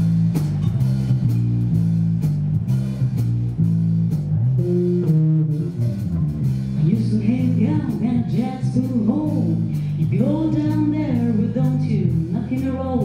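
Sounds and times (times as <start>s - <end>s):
bass guitar riff: 0.0s - 13.0s
drum kit: 0.0s - 13.0s
electric guitar riff: 4.4s - 6.8s.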